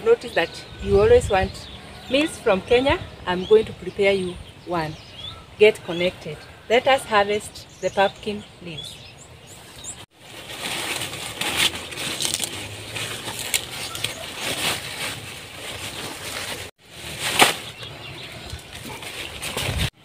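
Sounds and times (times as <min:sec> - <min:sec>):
leaves rustling: 0:05.3 - 0:20.0
loud crunch: 0:10.1 - 0:19.9
stems snapping: 0:11.3 - 0:14.3.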